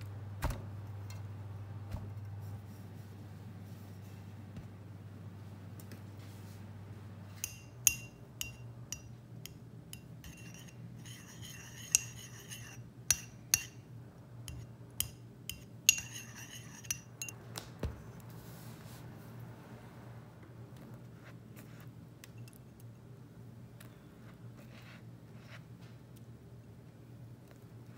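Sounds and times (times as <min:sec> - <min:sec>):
teaspoon clinking in ceramic dish: 0:07.4 - 0:13.8, 0:14.5 - 0:17.4.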